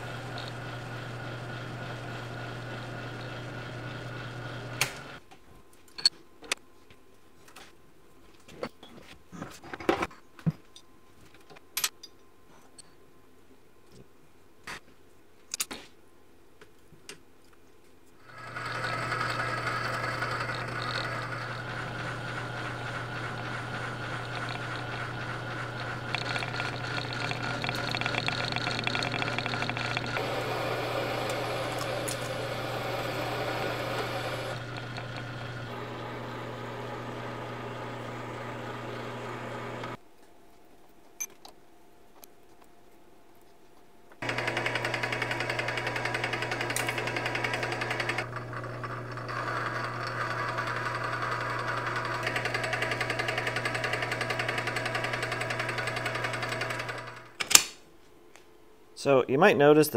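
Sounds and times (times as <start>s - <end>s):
metal lathe humming: 0.0s - 5.2s, 18.2s - 40.0s, 44.2s - 57.3s
hand tool scraping spinning steel: 18.3s - 35.8s.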